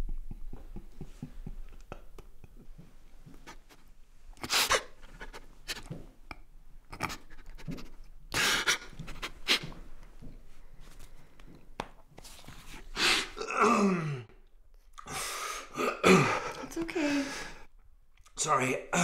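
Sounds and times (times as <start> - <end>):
man sobbing: 15.7 - 17.6.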